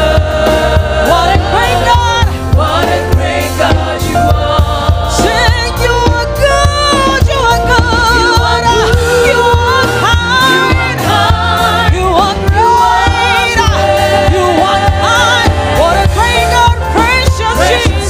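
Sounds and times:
backing voices singing: 0.0 - 18.0
band playing: 0.0 - 18.0
woman singing with vibrato: 5.1 - 18.0.

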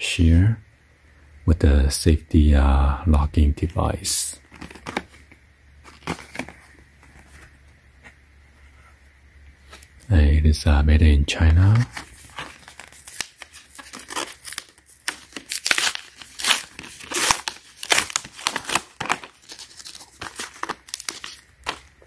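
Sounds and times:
card packaging tearing and rustling: 4.4 - 7.6, 11.4 - 22.0.

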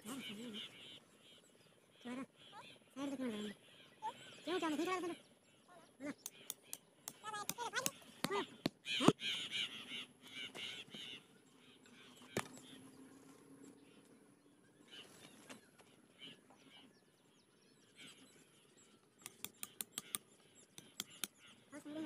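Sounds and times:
birds calling and chattering: 0.0 - 22.0
sharp taps: 19.2 - 20.2, 20.8 - 21.3.

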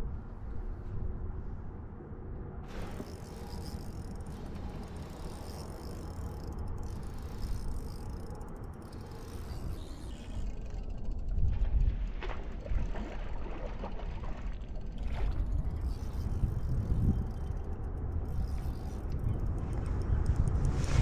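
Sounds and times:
wind rumble on microphone: 0.0 - 21.0
fishing reel clicking and ratcheting: 2.8 - 11.6, 14.4 - 20.9.

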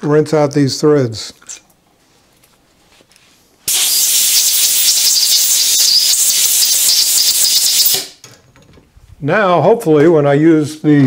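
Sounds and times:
air blow gun hissing: 3.7 - 8.2.

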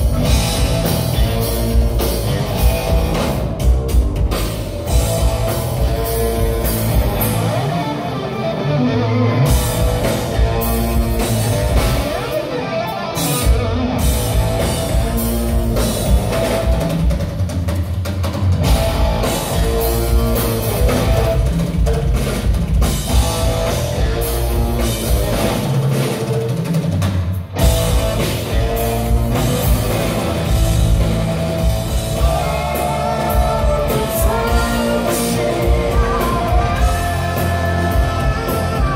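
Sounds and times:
live rock band playing: 0.0 - 38.9.

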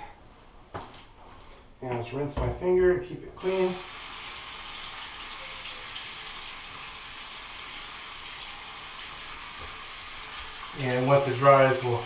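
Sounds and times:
tap water running: 3.4 - 12.0.

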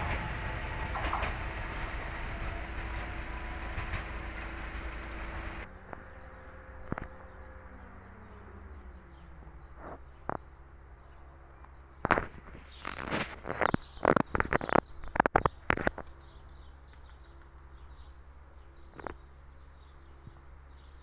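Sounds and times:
electric train passing on tracks: 0.0 - 6.5
open-air background: 0.0 - 21.0.

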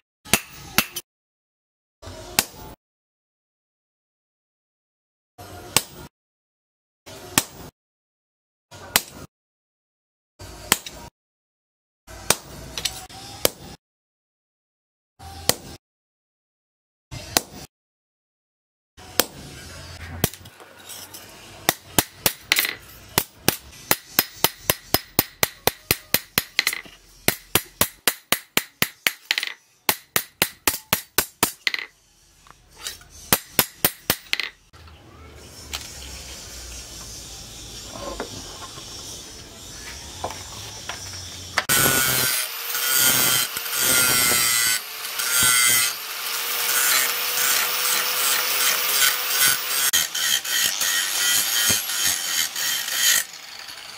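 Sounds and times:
hammer striking steel on anvil: 0.3 - 1.0, 21.7 - 31.9, 33.3 - 34.5
angle grinder grinding steel: 36.0 - 53.9.

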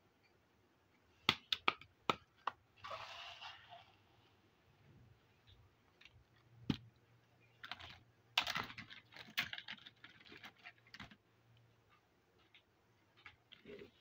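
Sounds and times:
plastic toy pieces clicking: 7.6 - 11.2.

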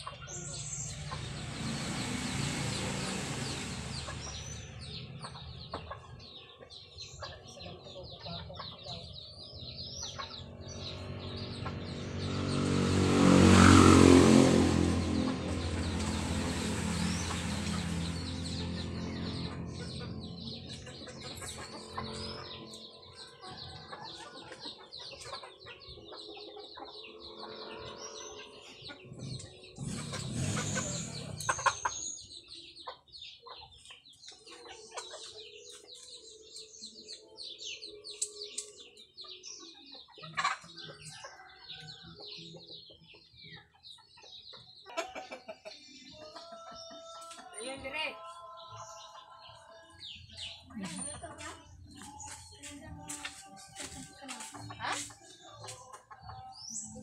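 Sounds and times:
chickens clucking: 0.0 - 12.8, 14.6 - 57.0
small birds chirping: 0.0 - 57.0
loud mechanical noise: 0.9 - 5.2, 10.8 - 22.4, 29.3 - 31.8.

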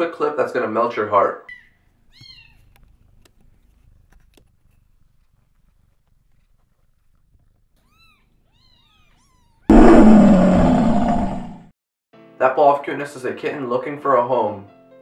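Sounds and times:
lion roar sound effect: 9.7 - 11.7.

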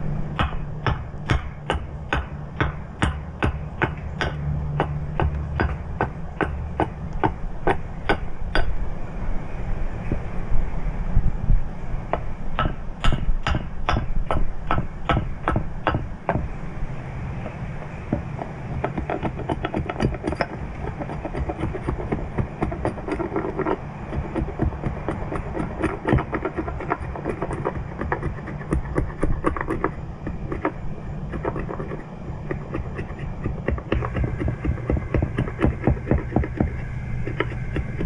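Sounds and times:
wind rumble on microphone: 0.0 - 38.0
axe chopping wood: 0.4 - 6.6.

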